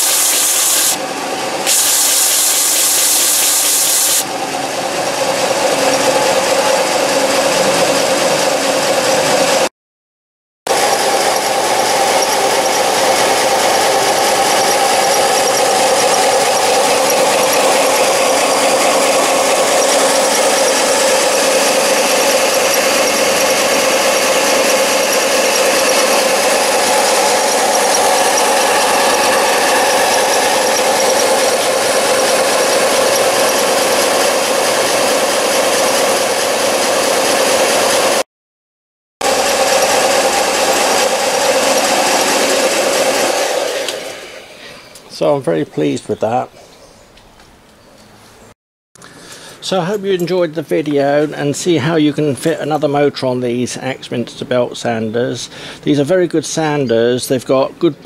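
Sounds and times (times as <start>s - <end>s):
belt sander whining: 0.0s - 9.7s, 10.7s - 38.2s, 39.2s - 45.4s.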